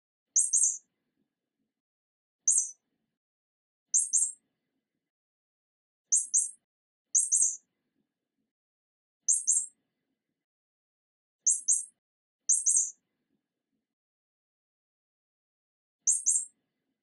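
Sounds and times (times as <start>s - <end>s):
mouse squeaking: 0.4s - 0.8s, 2.4s - 2.8s, 4.0s - 4.4s, 6.1s - 6.6s, 7.2s - 7.6s, 9.3s - 9.8s, 11.5s - 13.0s, 16.1s - 16.6s.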